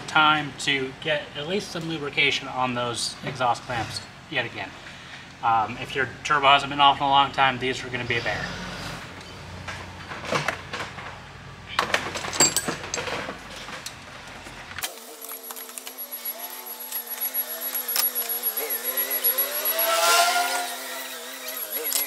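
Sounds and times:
metal tools clinking: 0:12.2 - 0:14.0, 0:15.1 - 0:22.0
faint wavering hum: 0:15.2 - 0:22.0.

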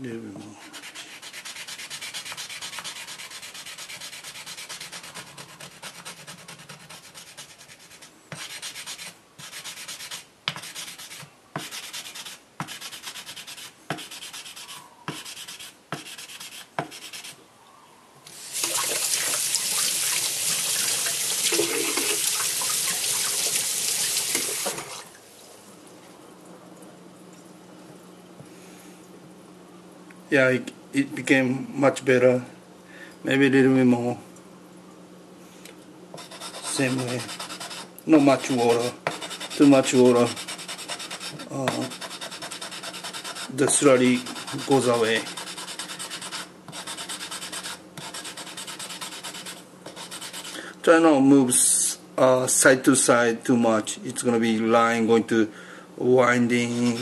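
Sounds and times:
tap running water: 0:18.3 - 0:25.2.

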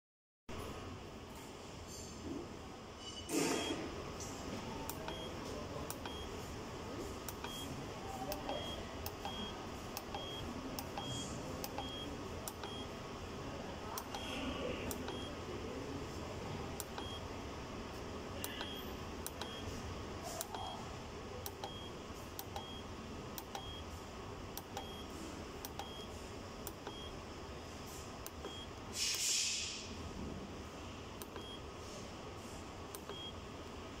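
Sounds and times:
keypad beeps: 0:03.5 - 0:03.8, 0:04.9 - 0:06.4, 0:07.3 - 0:12.9, 0:14.0 - 0:15.4, 0:16.8 - 0:17.2, 0:18.4 - 0:19.7, 0:20.4 - 0:20.8, 0:21.5 - 0:23.9, 0:24.6 - 0:26.1, 0:26.7 - 0:27.2, 0:28.3 - 0:28.7, 0:31.2 - 0:31.6, 0:33.0 - 0:33.4
burst of hiss: 0:28.9 - 0:29.9.

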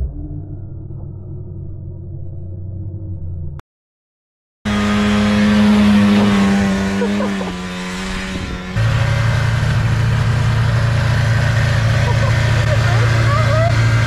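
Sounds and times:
snowmobile engine high revs: 0:04.7 - 0:14.0
snowmobile idling: 0:04.7 - 0:14.0.

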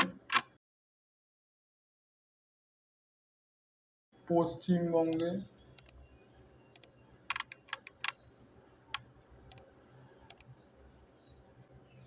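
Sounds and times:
computer mouse clicks: 0:05.1 - 0:06.0, 0:06.7 - 0:08.3, 0:08.9 - 0:10.6.

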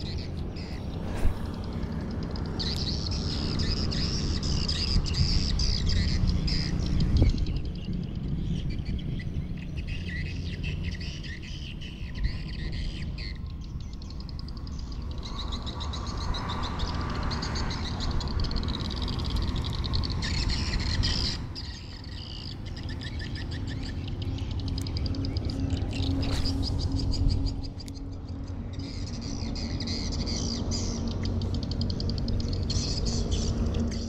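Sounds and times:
steady low rumble: 0:00.0 - 0:16.9
birds calling: 0:00.0 - 0:34.0.

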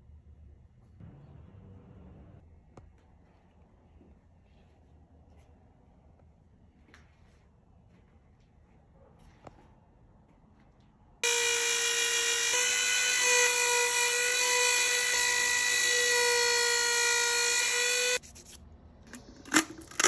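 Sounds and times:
rotary tool engraving wood: 0:11.2 - 0:18.2.

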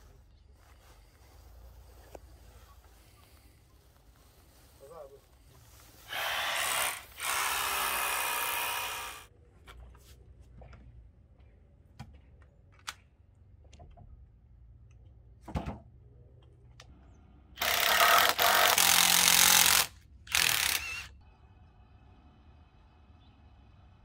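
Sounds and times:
power drill boring into log: 0:06.1 - 0:09.3, 0:17.6 - 0:21.1.

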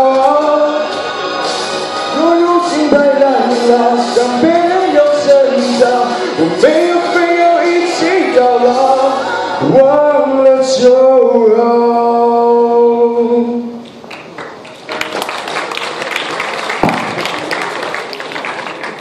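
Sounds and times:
man singing into a microphone: 0:00.0 - 0:01.2, 0:02.0 - 0:13.8
audience clapping: 0:14.1 - 0:19.0.

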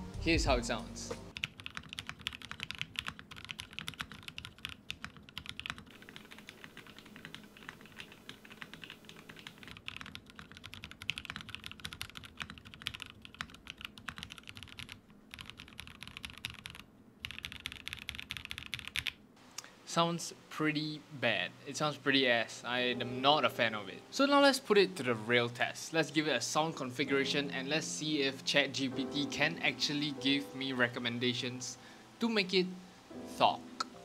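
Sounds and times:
fast mechanical keyboard typing: 0:01.3 - 0:19.2.

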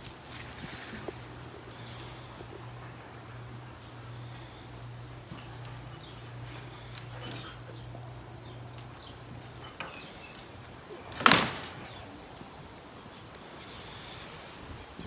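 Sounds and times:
door slamming shut: 0:11.0 - 0:12.1.

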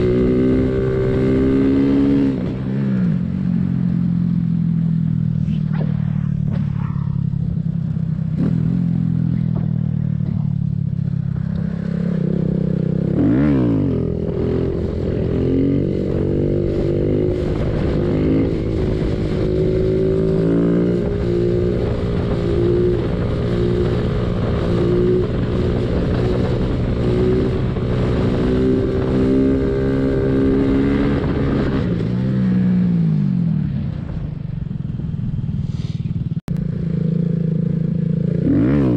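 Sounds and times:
motorcycle engine revving: 0:00.0 - 0:38.9
wind rumble on microphone: 0:13.9 - 0:32.1.

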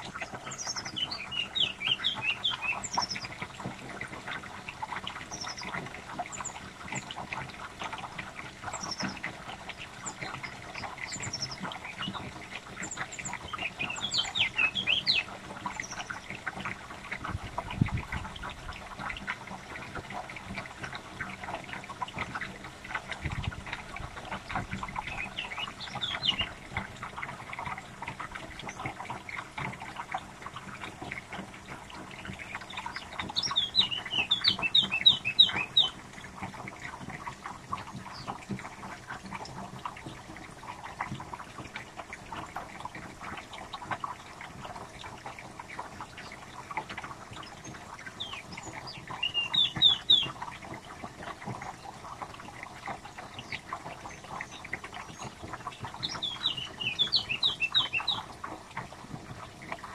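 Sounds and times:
birds twittering: 0:00.1 - 0:03.4, 0:04.9 - 0:07.2, 0:08.7 - 0:09.2, 0:10.0 - 0:16.4, 0:24.4 - 0:26.9, 0:32.0 - 0:36.0, 0:38.0 - 0:38.4, 0:47.4 - 0:50.4, 0:53.2 - 0:58.3
high downward-sweeping bird chirps: 0:33.4 - 0:36.0, 0:48.2 - 0:50.3, 0:56.1 - 0:58.2.

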